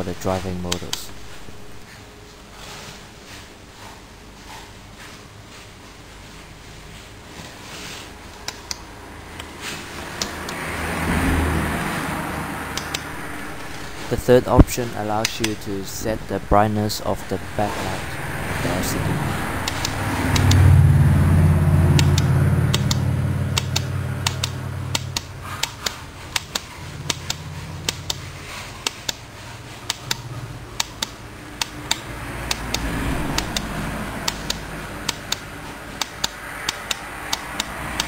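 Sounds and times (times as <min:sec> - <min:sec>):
loud low hum: 0:00.0 - 0:01.9, 0:09.0 - 0:26.1, 0:30.3 - 0:37.3
toggle switch clicking: 0:12.7 - 0:13.7, 0:19.6 - 0:20.6, 0:22.0 - 0:23.0, 0:23.6 - 0:28.2, 0:30.8 - 0:35.4, 0:36.0 - 0:38.0.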